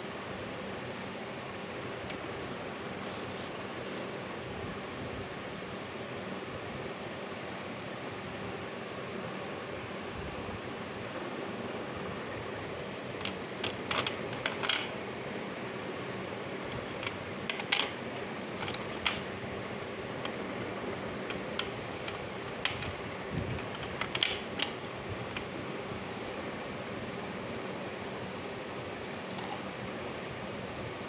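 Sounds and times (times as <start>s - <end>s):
steady hiss: 1.6s - 4.4s.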